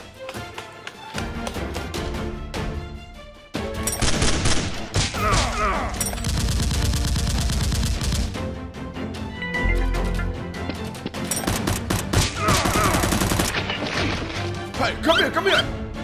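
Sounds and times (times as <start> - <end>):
background music: 0.0 - 16.0
rapid gunfire: 6.2 - 8.4, 11.4 - 13.6.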